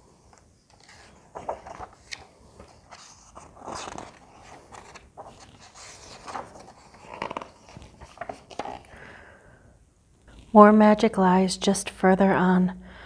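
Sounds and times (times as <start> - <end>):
book pages turning: 0.2 - 9.0.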